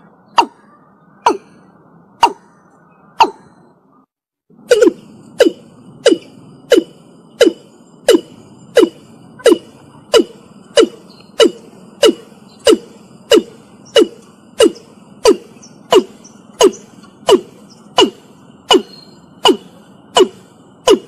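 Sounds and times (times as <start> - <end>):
bird calling short falling notes: 4.6 - 21.0.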